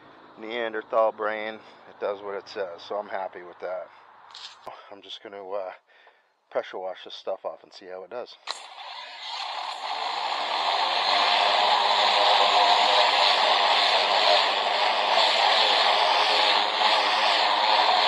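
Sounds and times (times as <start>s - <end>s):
electric pump humming: 8.5s - 18.0s
water jet hissing on siding: 8.5s - 18.0s.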